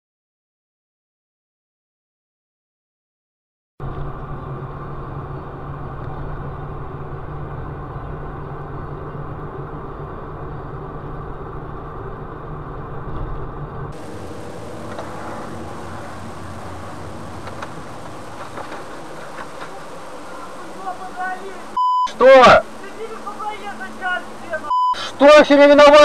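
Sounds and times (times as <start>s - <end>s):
car engine and road noise: 3.8s - 26.0s
hissy traffic background: 13.9s - 26.0s
crackles: 14.0s - 25.4s.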